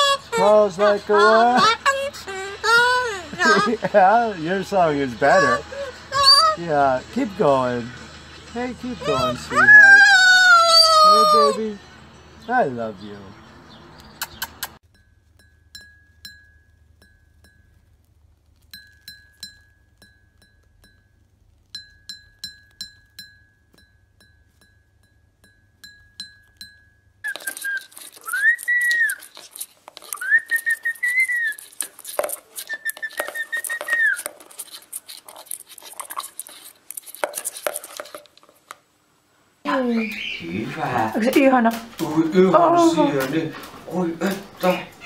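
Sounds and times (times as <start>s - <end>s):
parrot whistling: 0.0s - 7.1s, 9.0s - 11.8s, 27.2s - 34.4s, 39.7s - 40.8s
beak tapping porcelain bowl: 18.6s - 21.1s, 21.7s - 38.3s
scrabbling in plastic bucket: 27.3s - 38.7s.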